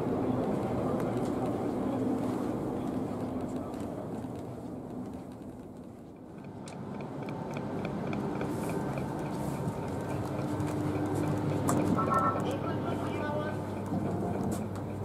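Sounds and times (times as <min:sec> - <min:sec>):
train hum at station: 0:00.0 - 0:15.0
fast even ticking: 0:06.1 - 0:15.0.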